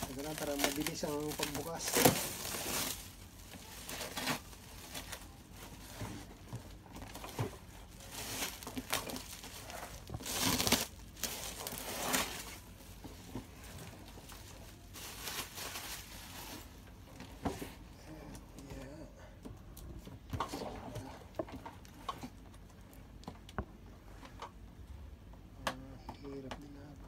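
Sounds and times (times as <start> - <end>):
plastic wrapping crinkling: 0.0 - 17.3.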